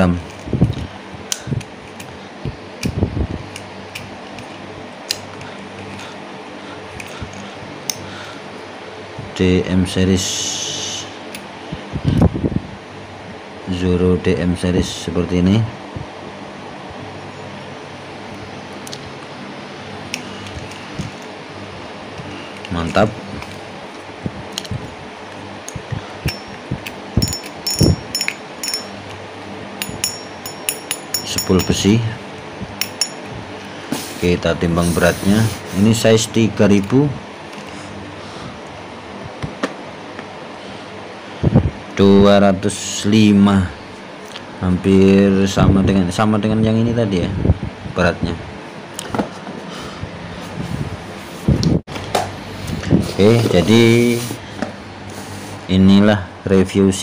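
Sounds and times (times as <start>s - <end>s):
steady background hum: 0.0s - 57.0s
metal parts clinking: 27.2s - 29.2s, 29.8s - 31.9s, 32.8s - 33.2s.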